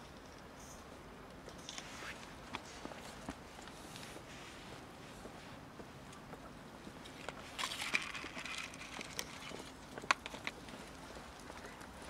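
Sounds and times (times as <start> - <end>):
cats crunching dry kibble: 7.0 - 12.0.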